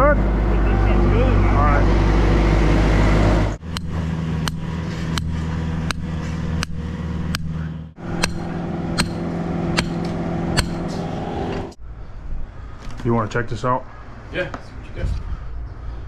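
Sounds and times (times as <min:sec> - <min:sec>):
steady engine hum: 0:00.0 - 0:16.0
sledgehammer striking steel stake: 0:03.6 - 0:11.0.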